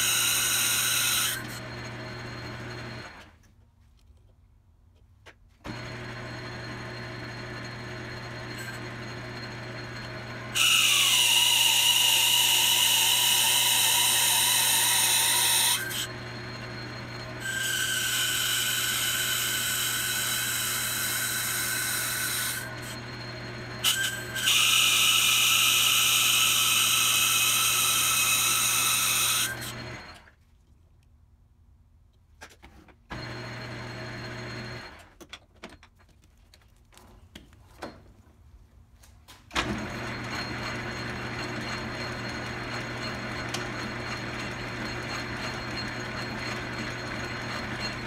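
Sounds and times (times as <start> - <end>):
lathe cutting metal high-pitched: 0.0 - 3.1, 5.7 - 30.1, 40.1 - 48.0
lathe motor humming: 0.3 - 3.2, 5.7 - 28.8, 29.4 - 30.2, 39.6 - 48.0.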